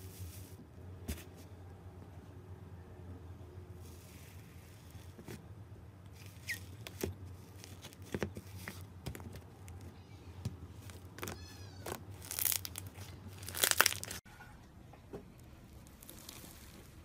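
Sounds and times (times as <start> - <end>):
slime squishing and popping: 10.8 - 14.2.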